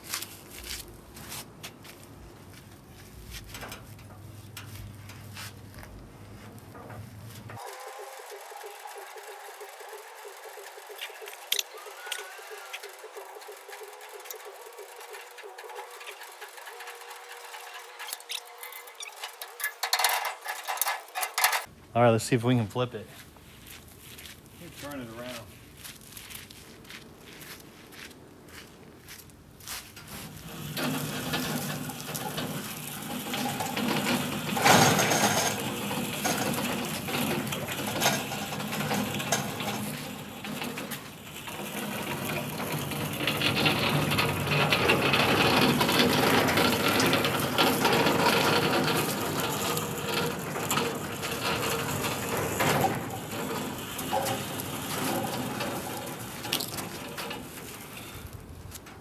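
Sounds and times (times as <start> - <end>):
metal frame rattling and clicking: 0.0 - 21.7, 29.9 - 59.0
caster wheels rolling on concrete: 0.0 - 59.0
metal clank: 30.5 - 59.0.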